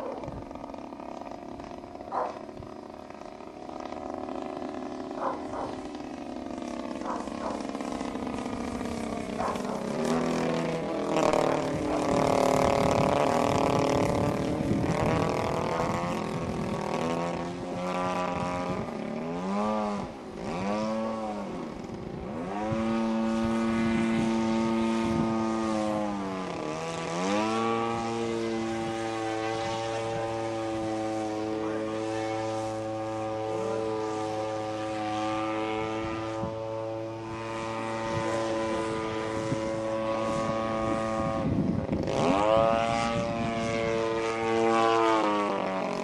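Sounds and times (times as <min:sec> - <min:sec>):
aerobatic plane engine droning: 0:00.0 - 0:46.0.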